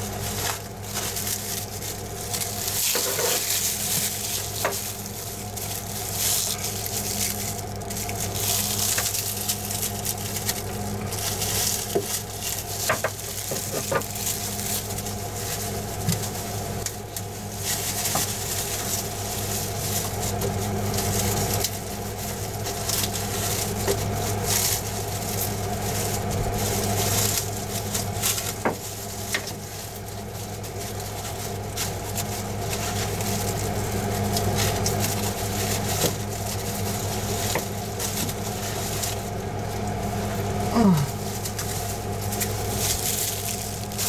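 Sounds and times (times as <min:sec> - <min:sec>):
steady low hum: 0:00.0 - 0:44.0.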